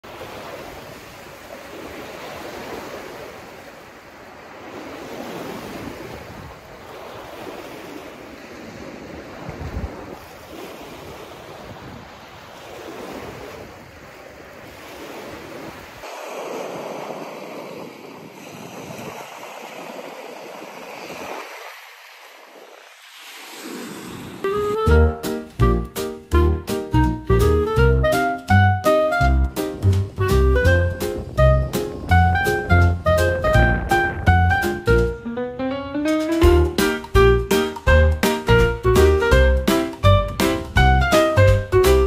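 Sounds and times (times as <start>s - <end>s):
small waves on stony shore: 0.0s - 24.5s
wind on microphone: 5.4s - 7.6s, 8.7s - 21.7s, 29.3s - 36.9s.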